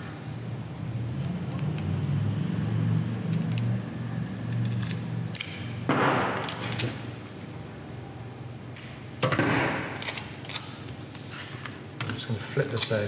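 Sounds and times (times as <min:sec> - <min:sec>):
tape ripping: 0:09.8 - 0:10.8.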